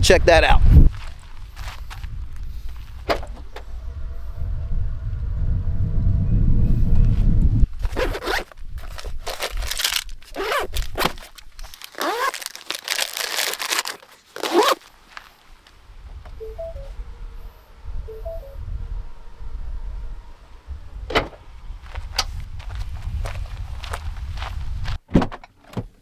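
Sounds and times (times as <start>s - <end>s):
wind rumbling on microphone: 0.0s - 13.9s, 15.6s - 25.0s
nylon fabric rustling: 7.8s - 15.5s
bag zippers pulled: 7.9s - 14.9s.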